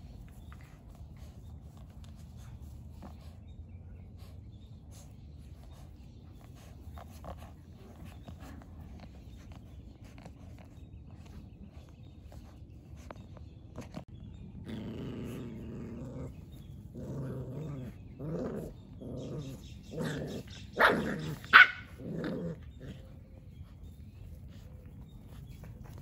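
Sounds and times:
puppies growling: 0.0s - 26.0s
puppy barks: 20.0s - 22.0s.

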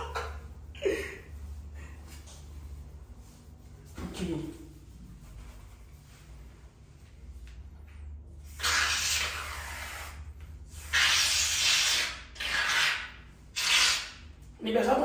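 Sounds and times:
aerosol foam spraying: 8.5s - 14.2s.

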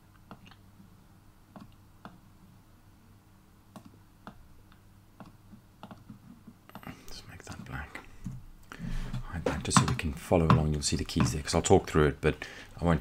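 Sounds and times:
computer mouse clicks: 3.7s - 6.9s.

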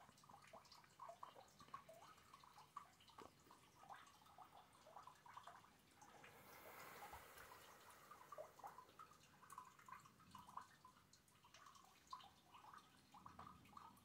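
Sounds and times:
rainwater dripping: 0.0s - 14.0s
rain hissing: 6.0s - 9.4s.

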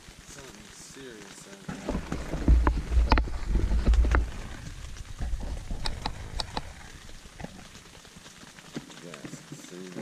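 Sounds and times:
heavy rain on a tent: 0.0s - 10.0s
camera handling rumble: 1.8s - 6.8s.

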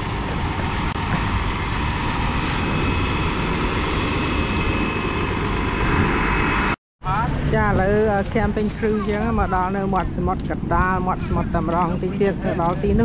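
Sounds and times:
vehicle engine rumble: 0.0s - 13.0s
faint high whine: 0.4s - 7.2s.

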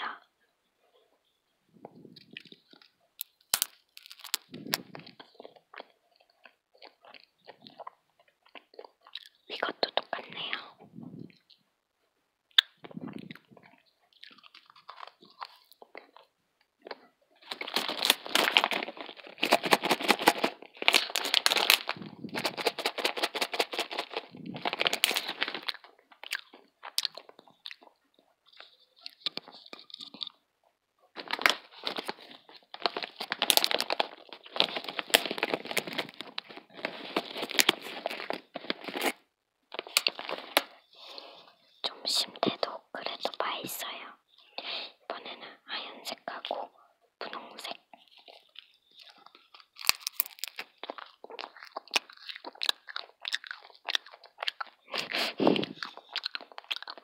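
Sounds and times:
plastic snack packet crinkling: 1.8s - 11.6s, 12.6s - 30.4s, 31.1s - 57.0s.

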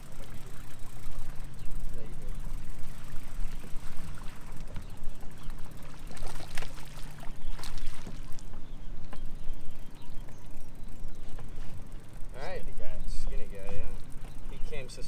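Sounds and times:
water slapping boat hull: 0.0s - 9.3s
steady low hum: 0.0s - 15.0s
fish splashing at surface: 5.8s - 8.4s.

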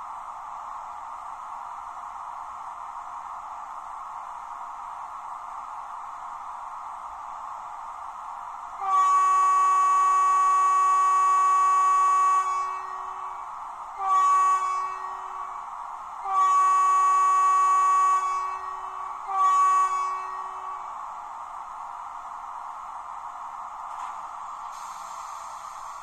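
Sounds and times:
steady hiss: 0.0s - 26.0s
model locomotive horn blasts: 8.8s - 20.9s.

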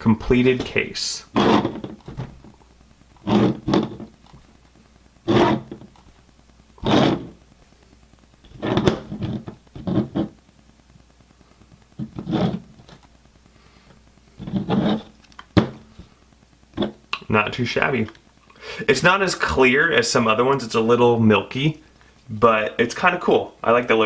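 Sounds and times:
plastic case knocks and scrapes: 8.6s - 10.2s.

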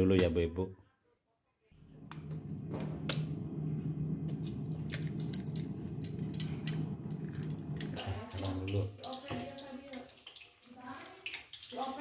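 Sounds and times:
steady low hum: 1.8s - 8.6s
egg frying in hot oil: 3.0s - 12.0s.

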